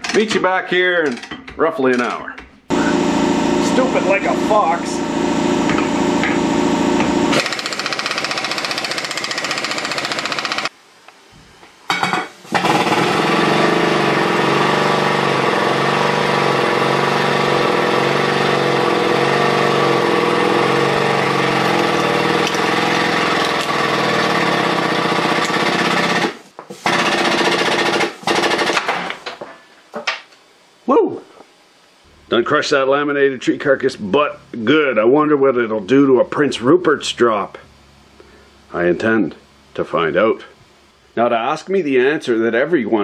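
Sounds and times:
air tool chattering: 7.3s - 10.7s.

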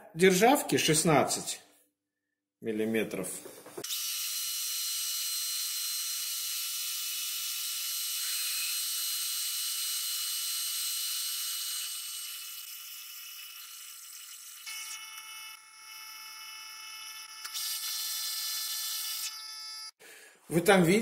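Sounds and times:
sped-up lathe drilling whine: 3.9s - 19.9s.

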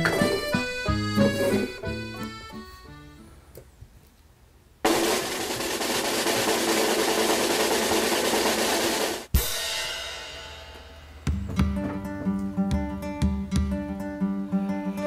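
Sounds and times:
snare drum roll: 4.8s - 10.1s
cymbal crash: 9.2s - 11.3s
strummed guitar tune: 11.5s - 15.0s.

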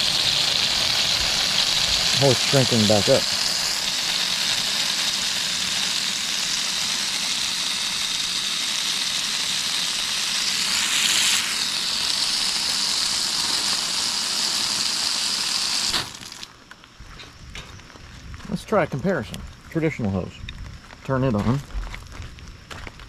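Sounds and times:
water spraying from hose: 0.0s - 16.5s.

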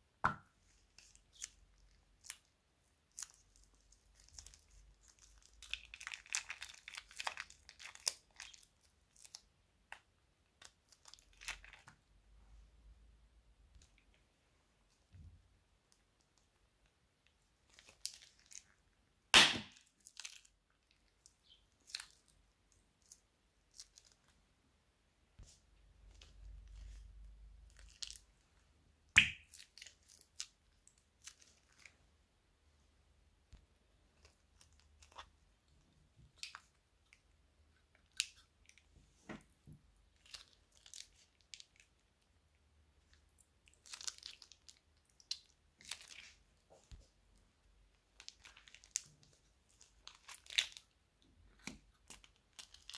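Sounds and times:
loud crackling pop: 19.4s - 19.8s.

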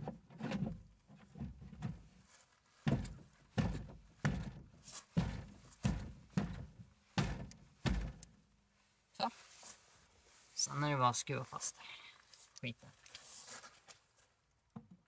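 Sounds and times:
dull knocks on car window: 2.9s - 4.6s, 5.2s - 8.2s
faint plastic handling sounds: 11.3s - 15.0s.

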